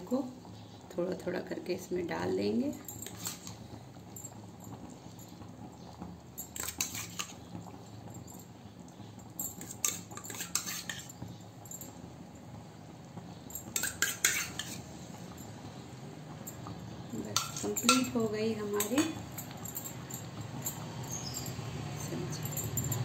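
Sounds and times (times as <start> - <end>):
low steady background noise: 0.0 - 23.0
metal spoon scraping a pan: 3.0 - 3.6, 6.5 - 7.5, 9.5 - 11.2, 13.6 - 15.0, 17.2 - 19.3.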